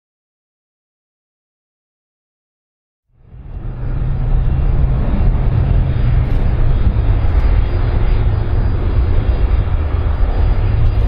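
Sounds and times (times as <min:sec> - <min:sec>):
deep rumble: 0:03.1 - 0:11.0
jet engines running: 0:03.1 - 0:11.0.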